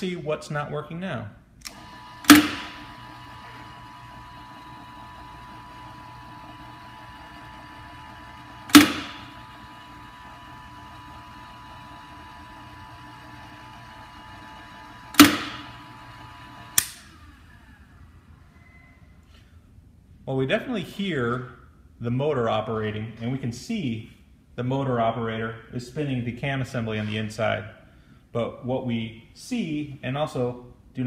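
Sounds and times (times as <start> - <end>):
sharp mechanical clicks: 1.6 - 2.8, 15.1 - 15.8, 16.7 - 17.1
valve motor humming: 1.7 - 18.4.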